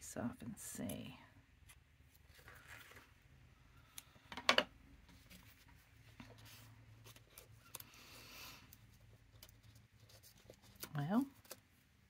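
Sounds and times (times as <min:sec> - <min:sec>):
fabric rustling on paper: 0:02.1 - 0:03.2.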